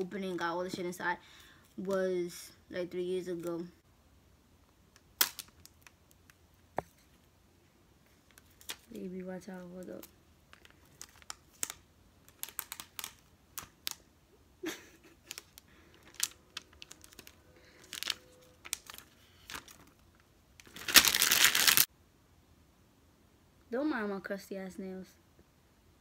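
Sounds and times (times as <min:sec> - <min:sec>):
plastic wrap crinkling: 0:05.2 - 0:06.4, 0:09.6 - 0:14.0, 0:14.6 - 0:21.9.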